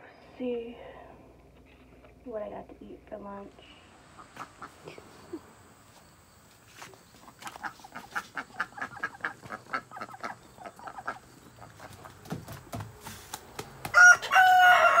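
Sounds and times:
chickens clucking: 0:04.0 - 0:14.7.

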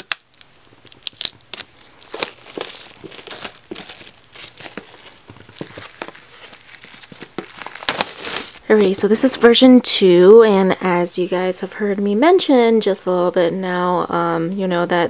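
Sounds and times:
shrink wrap crinkling and tearing: 0:00.0 - 0:08.6.

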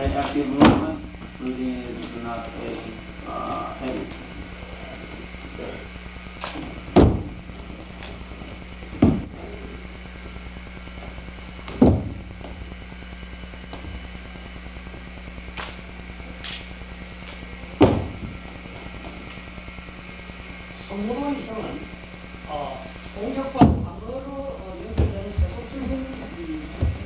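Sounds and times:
feet stamping on wooden floor: 0:06.6 - 0:09.4, 0:11.0 - 0:12.7, 0:17.8 - 0:19.2, 0:23.6 - 0:24.0, 0:24.8 - 0:26.2, 0:26.8 - 0:27.0.

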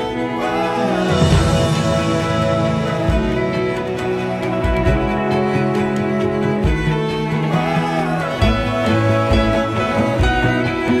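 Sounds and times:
bowed strings music: 0:00.0 - 0:11.0
low bass notes: 0:00.0 - 0:11.0.

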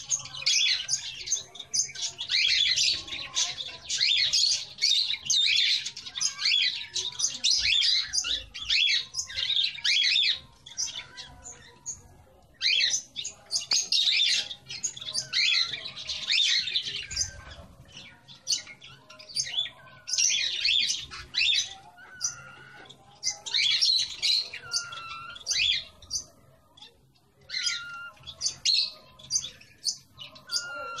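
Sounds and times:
cage birds chirping and squawking: 0:00.0 - 0:31.0.

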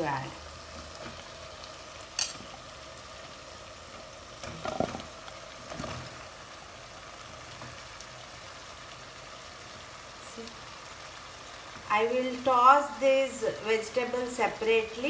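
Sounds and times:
chicken sizzling in a pan: 0:00.0 - 0:15.0.

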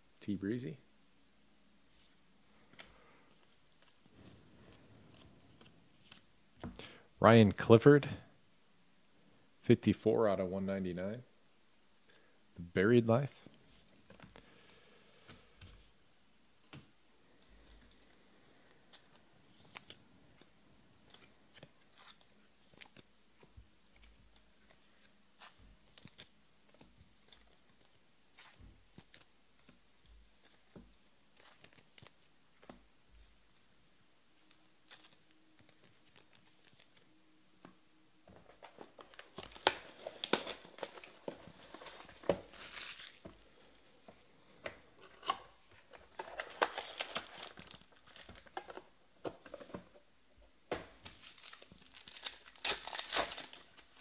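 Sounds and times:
plastic wrapping crinkling and tearing: 0:38.6 - 0:43.4, 0:45.0 - 0:48.9, 0:51.0 - 0:54.0.

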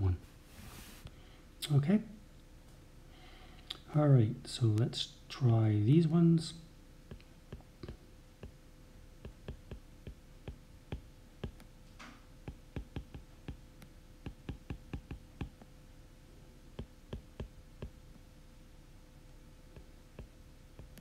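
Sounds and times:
stylus tapping on glass screen: 0:09.2 - 0:11.7, 0:12.5 - 0:15.7, 0:16.8 - 0:18.0.

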